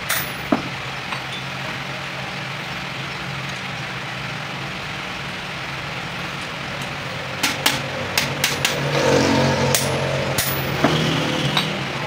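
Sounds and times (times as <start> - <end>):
sharp metallic clicks of hand tool: 7.4 - 8.8, 9.7 - 10.7.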